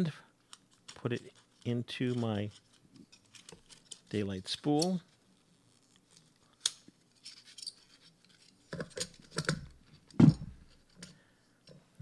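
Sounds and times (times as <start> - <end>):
scratchy rustling: 0.4 - 8.6
clicks and scrapes: 0.4 - 11.8.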